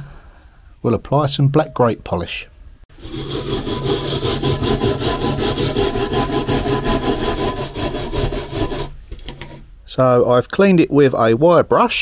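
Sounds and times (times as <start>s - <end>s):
wire brush scrubbing metal: 2.9s - 9.6s.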